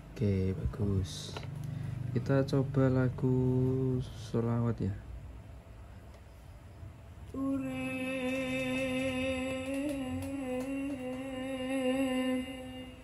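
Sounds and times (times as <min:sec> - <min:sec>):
person singing a long note: 0:07.3 - 0:13.0.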